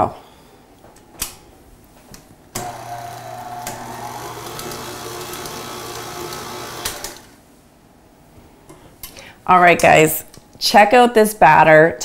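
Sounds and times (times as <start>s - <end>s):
stand mixer whisking batter: 2.6s - 7.3s.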